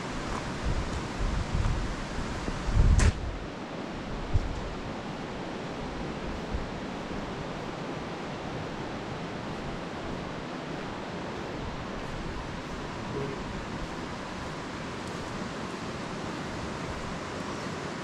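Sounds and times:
rushing outdoor noise: 0.0s - 18.0s.

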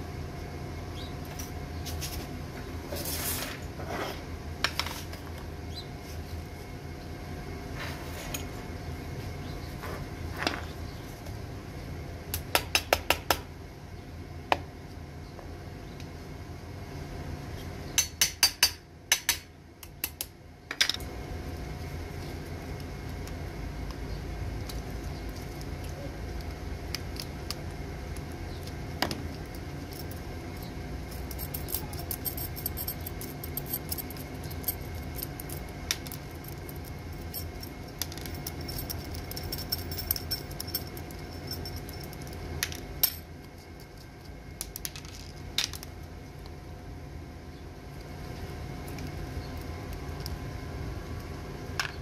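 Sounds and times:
steady low hum: 0.0s - 52.0s
small metal parts clinking: 29.3s - 44.1s.

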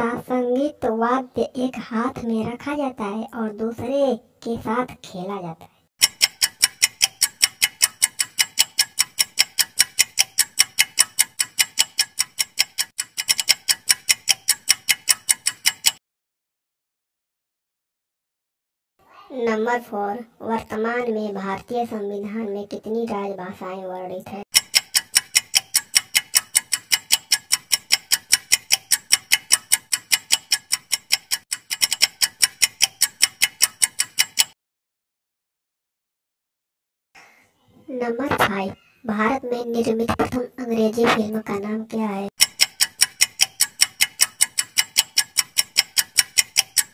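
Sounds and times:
fast clock-like ticking: 6.0s - 16.0s, 24.5s - 34.6s, 39.7s - 41.6s, 42.4s - 46.9s.

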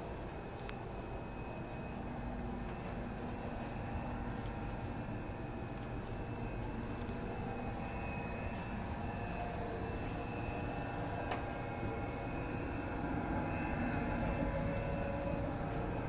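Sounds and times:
train running noise from inside: 0.0s - 16.0s.

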